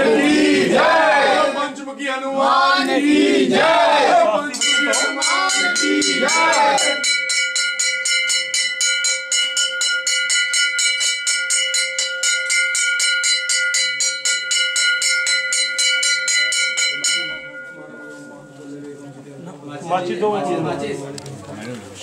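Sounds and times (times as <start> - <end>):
temple bell rung rapidly: 4.4 - 18.8.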